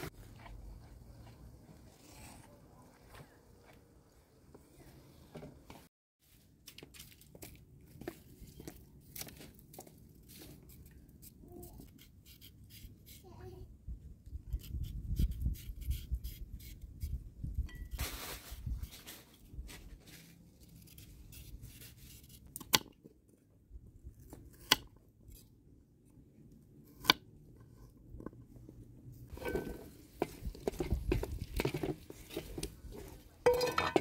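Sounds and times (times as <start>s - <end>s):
peeler scraping a carrot: 11.2s - 13.2s, 14.5s - 17.8s
spoon scraping a metal pan: 33.4s - 34.0s.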